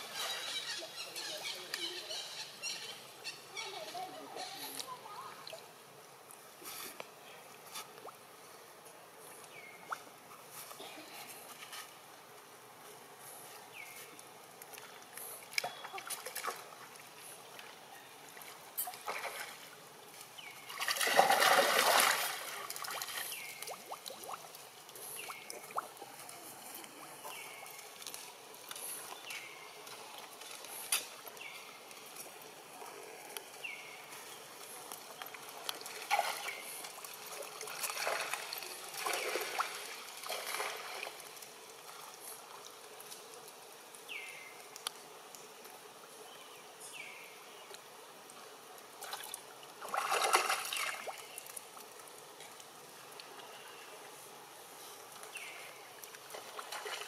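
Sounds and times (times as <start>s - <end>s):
water sloshing and splashing: 14.7s - 33.2s, 34.8s - 43.2s, 48.9s - 53.4s, 55.9s - 57.0s
loud splash: 20.8s - 22.9s.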